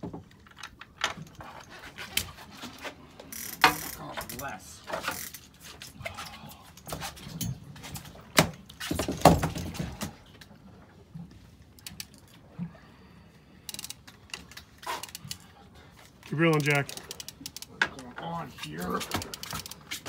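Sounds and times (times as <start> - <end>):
fishing reel clicking: 13.7 - 15.4, 16.5 - 17.7.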